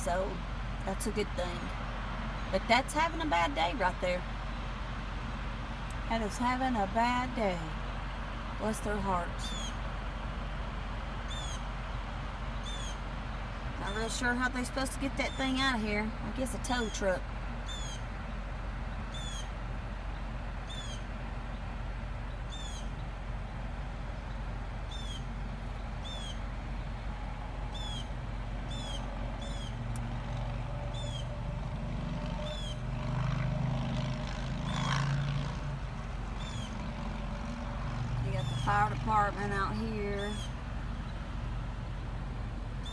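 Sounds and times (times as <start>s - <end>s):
traffic hum: 0.0s - 42.9s
vehicle engine: 0.0s - 42.9s
bird chirping: 9.4s - 9.8s, 11.3s - 11.7s, 12.5s - 13.0s, 17.6s - 18.1s, 18.9s - 19.5s, 20.1s - 23.2s, 24.1s - 27.1s, 27.7s - 29.8s, 30.8s - 31.4s, 32.4s - 32.8s, 36.4s - 37.0s, 40.1s - 41.2s.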